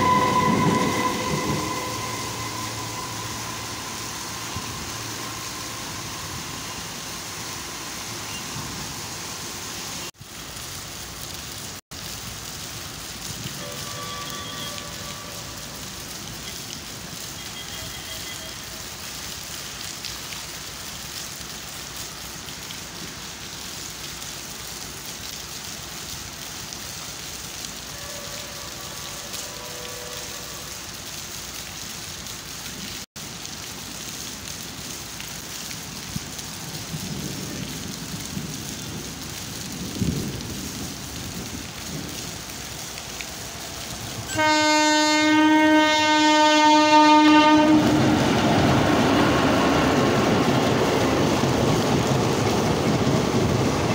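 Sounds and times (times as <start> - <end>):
train horn: 0.0 - 7.6, 13.4 - 16.6, 17.2 - 18.8, 27.8 - 31.0, 44.2 - 48.4
train rumbling past: 0.0 - 10.1, 13.4 - 16.8, 42.9 - 53.9
steady rain falling: 0.0 - 53.9.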